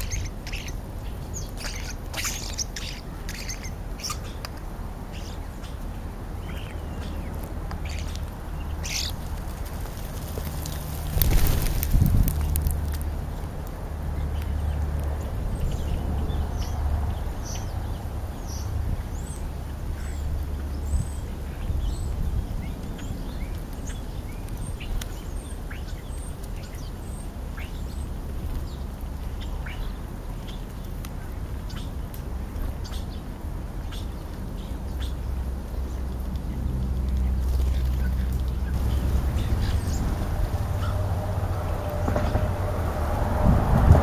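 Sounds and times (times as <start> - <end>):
starlings chirping and whistling: 0.0 - 4.4, 5.1 - 9.2, 37.5 - 42.4
low rumble: 36.4 - 44.0.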